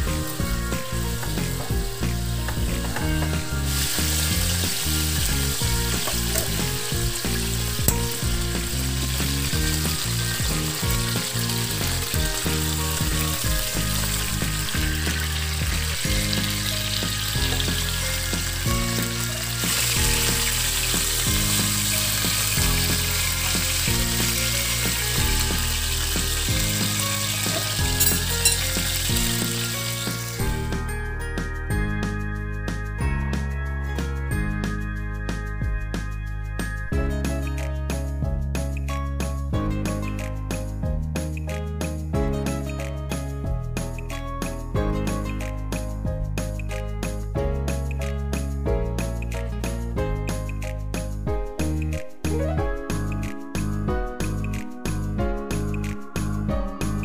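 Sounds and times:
chicken sizzling in oil: 0.0s - 30.9s.

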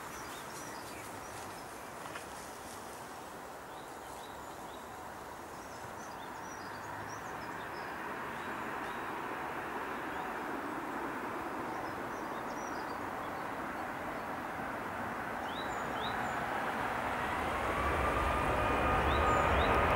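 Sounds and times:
jet airliner engine rushing: 7.9s - 19.9s
small birds chirping: 11.7s - 14.4s, 15.4s - 16.5s.

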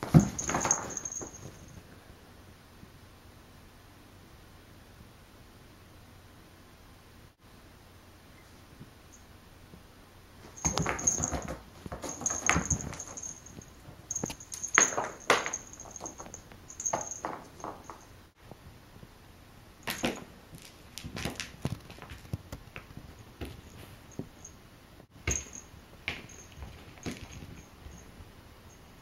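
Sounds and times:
high jingle: 0.2s - 1.7s, 10.5s - 18.2s
cat scrabbling and scratching: 10.4s - 18.0s, 20.6s - 23.8s, 25.4s - 28.0s.

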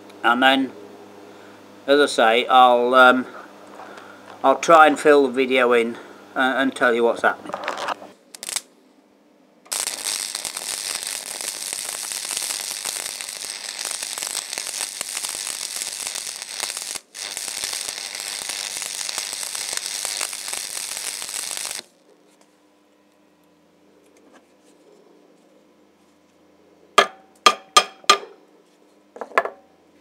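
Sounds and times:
arc welding crackle: 7.5s - 8.7s, 9.7s - 22.3s.

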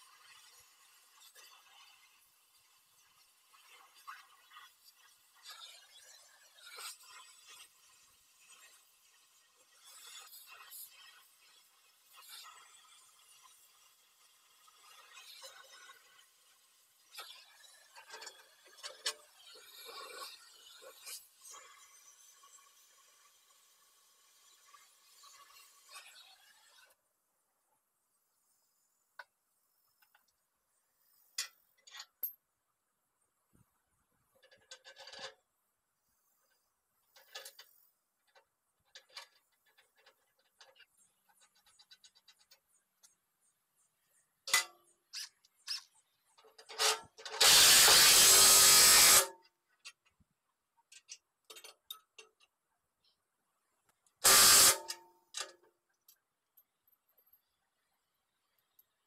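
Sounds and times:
metal clicks and clinks: 50.9s - 52.6s.

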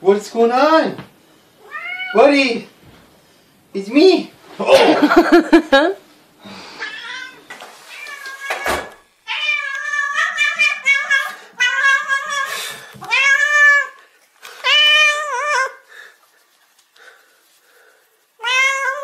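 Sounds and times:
cat meowing: 1.6s - 2.2s, 6.8s - 14.0s, 18.4s - 19.0s.

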